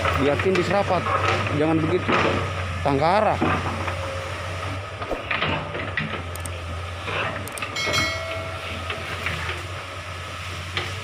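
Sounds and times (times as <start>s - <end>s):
distant excavator engine: 0.0s - 11.0s
high ringing chime: 7.8s - 9.1s.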